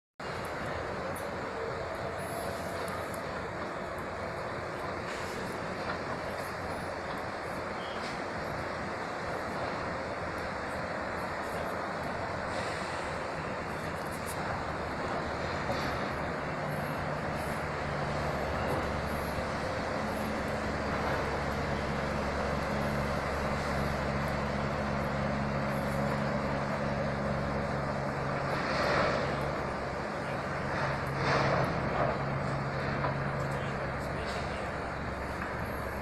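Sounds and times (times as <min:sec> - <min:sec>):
distant engine drone: 0:00.2 - 0:36.0
steady hiss: 0:05.0 - 0:28.4.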